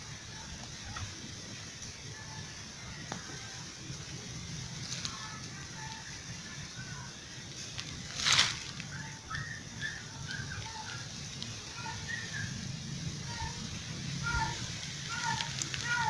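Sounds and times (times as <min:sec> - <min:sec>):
steady low hum: 0:00.0 - 0:16.0
burst of rustling: 0:07.5 - 0:09.0, 0:13.5 - 0:16.0.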